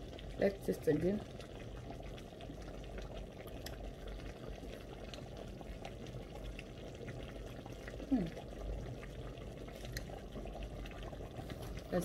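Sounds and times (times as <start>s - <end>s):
soup bubbling in a pot: 0.0s - 12.0s.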